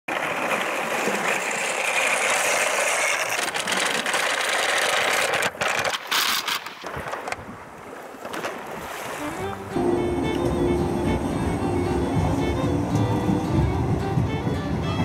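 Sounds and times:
toy wheels crunching over pebbles: 0.1s - 7.4s.

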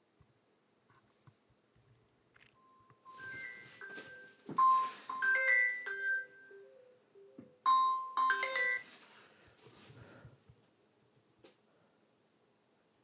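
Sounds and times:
electronic chime-like ringtone melody: 2.6s - 8.9s.

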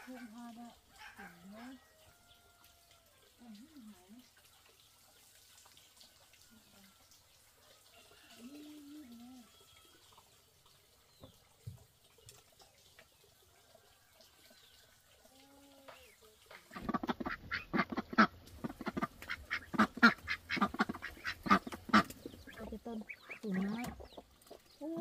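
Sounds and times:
poultry squawking: 16.7s - 24.2s.

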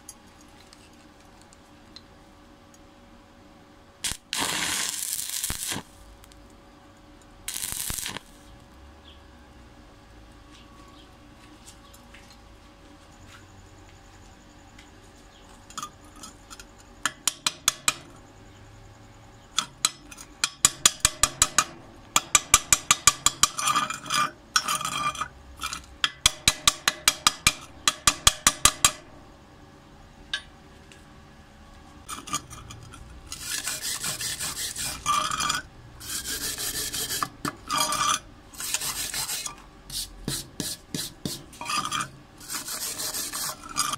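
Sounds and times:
wire brush scrubbing metal: 33.3s - 43.9s.

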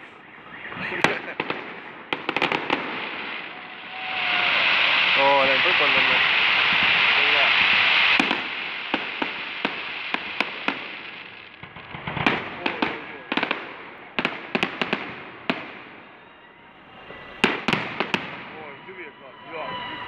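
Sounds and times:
fireworks bursting with sharp bangs: 0.0s - 20.0s.

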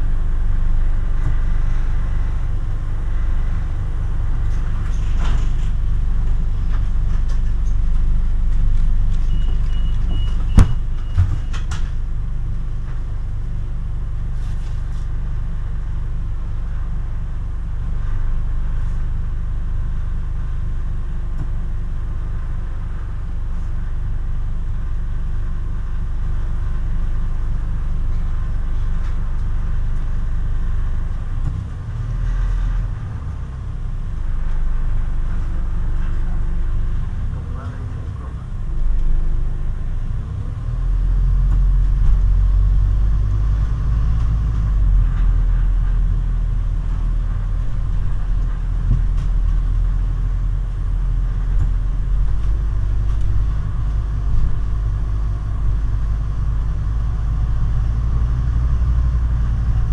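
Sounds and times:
bus engine rumble from inside: 0.0s - 59.9s
short high beep: 9.2s - 11.6s.

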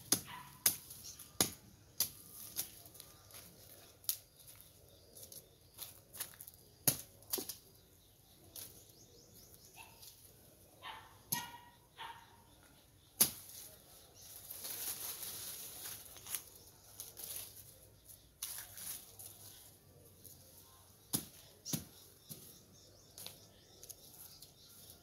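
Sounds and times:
dry brush rustling: 13.4s - 17.8s, 18.4s - 20.5s.

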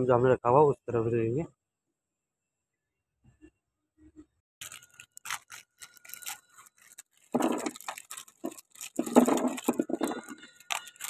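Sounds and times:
plastic bag crinkling: 4.6s - 11.0s
plastic parts rattling on table: 4.6s - 11.0s.

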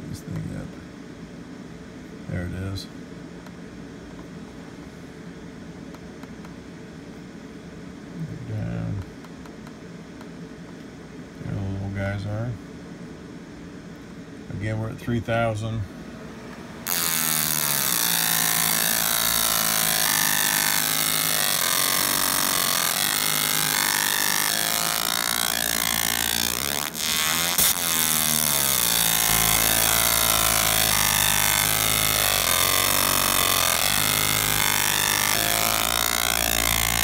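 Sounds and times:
laser marker buzzing and whining: 16.8s - 37.0s.

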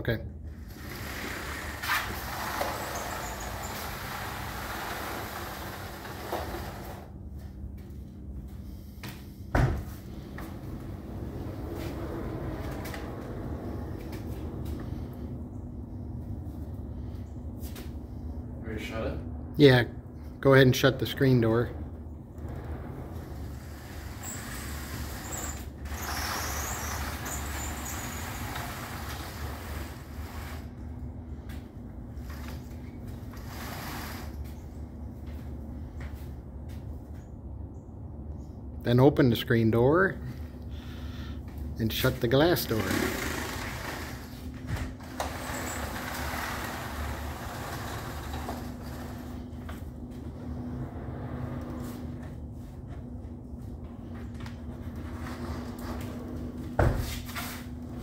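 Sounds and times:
low rumble: 0.3s - 26.2s, 43.1s - 56.8s
door panels sliding on tracks: 0.5s - 7.2s, 9.5s - 15.2s, 22.2s - 31.0s, 32.2s - 34.6s, 42.6s - 52.5s, 54.6s - 58.0s
insect screen sliding along track: 0.7s - 7.0s, 22.5s - 30.7s.

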